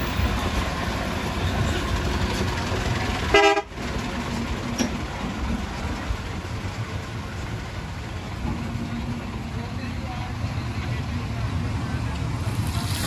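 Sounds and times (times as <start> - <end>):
street traffic rumble: 0.0 - 13.0
vehicle horn blast: 3.3 - 3.7.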